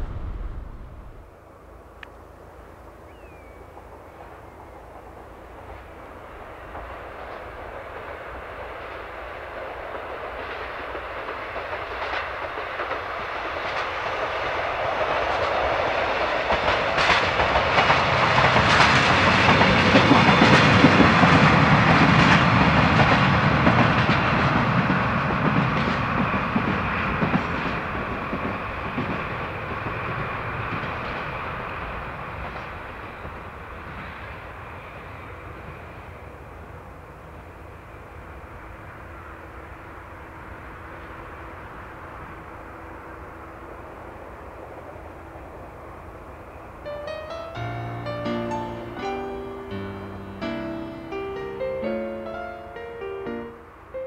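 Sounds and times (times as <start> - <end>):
locomotive engine drone: 0.0 - 6.8
wheels clicking over rail joints: 9.8 - 34.0.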